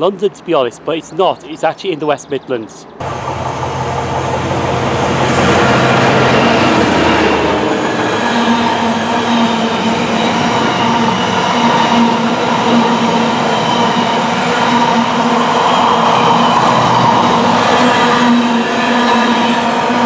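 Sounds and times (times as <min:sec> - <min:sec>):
freight train wheels rumbling on rail: 0:03.0 - 0:20.0.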